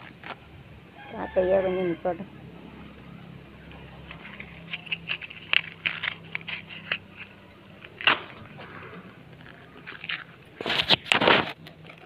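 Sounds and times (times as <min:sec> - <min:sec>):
cooking fire crackling: 0:03.0 - 0:12.0.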